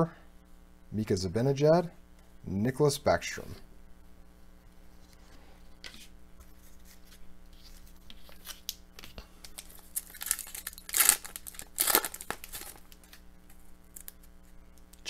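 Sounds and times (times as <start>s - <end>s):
foil wrapper crinkling: 6.8s - 14.6s
foil wrapper ripping: 9.4s - 14.4s.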